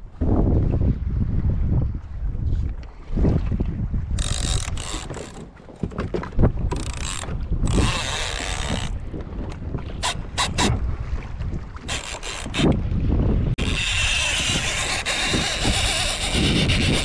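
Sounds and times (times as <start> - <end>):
wind buffeting microphone: 0.0 - 17.0
fishing reel clicks: 4.2 - 5.4, 6.7 - 9.0, 10.0 - 10.7, 11.9 - 12.7, 13.6 - 17.0.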